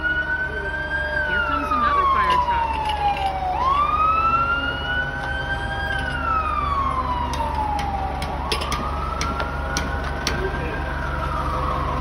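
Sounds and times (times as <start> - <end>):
emergency siren wailing: 0.0 - 12.0.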